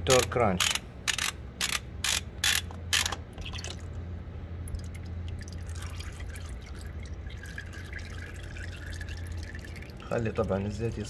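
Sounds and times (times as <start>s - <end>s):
ratchet wrench clicking: 0.1s - 3.2s.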